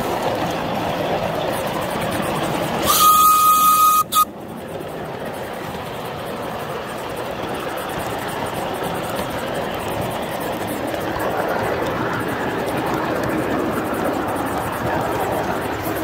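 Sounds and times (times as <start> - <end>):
train wheels rolling on rails: 0.0 - 16.0
steam whistle: 2.8 - 4.3.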